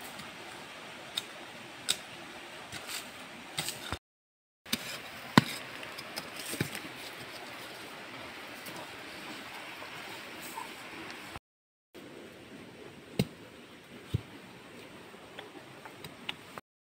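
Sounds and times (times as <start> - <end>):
digging tool knocking and scraping: 4.7 - 7.5
shallow stream rushing: 4.7 - 11.4.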